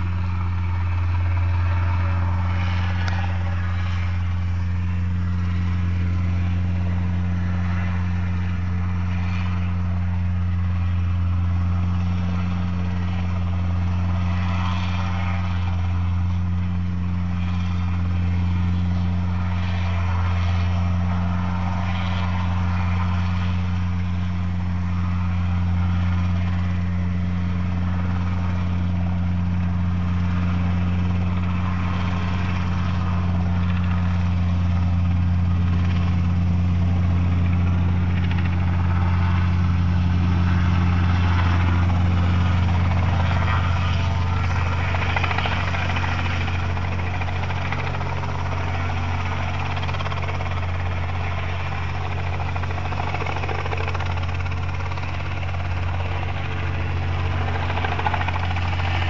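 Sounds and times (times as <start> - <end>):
aircraft engine droning: 0.0 - 59.0.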